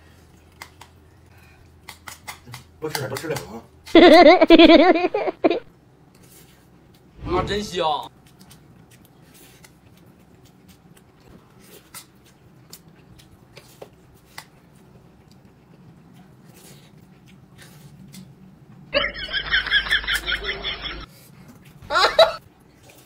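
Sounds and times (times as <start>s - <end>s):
low hum: 7.1s - 8.1s
chewing: 8.1s - 18.8s, 22.4s - 23.0s.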